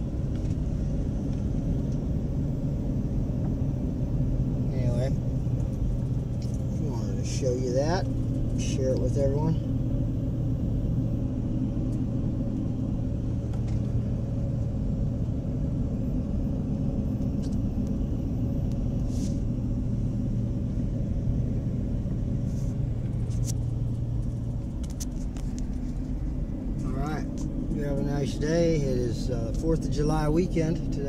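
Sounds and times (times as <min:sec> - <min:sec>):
car engine and tyre rumble: 0:00.0 - 0:31.0.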